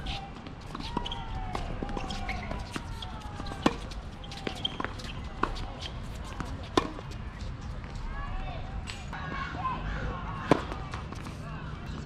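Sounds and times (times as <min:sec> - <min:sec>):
tennis ball bouncing: 0:00.1 - 0:07.2
tennis ball hit by racket: 0:03.4 - 0:05.6.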